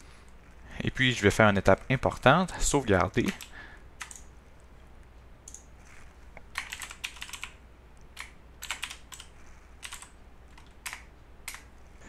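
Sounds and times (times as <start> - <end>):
faint low hum: 0.0 - 12.0
typing on keyboard: 3.2 - 4.3, 5.5 - 5.7, 6.5 - 7.6, 8.2 - 11.7.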